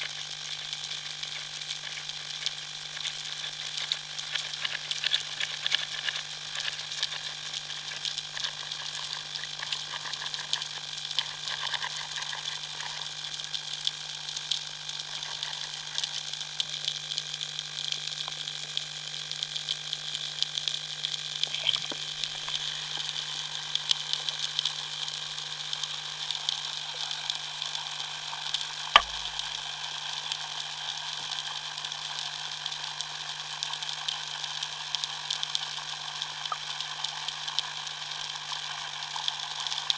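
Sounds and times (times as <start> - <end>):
underwater crackling hiss: 0.0 - 39.9
constant low hum: 20.1 - 30.2
sharp click: 29.0 - 29.3.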